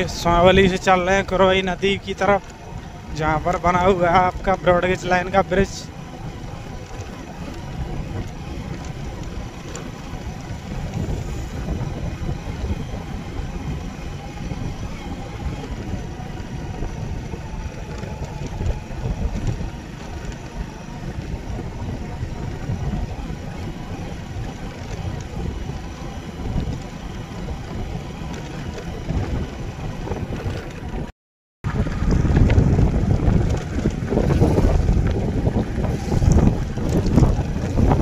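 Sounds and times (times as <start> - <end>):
vehicle engine rumble: 0.0 - 38.0
wind buffeting microphone: 0.0 - 38.0.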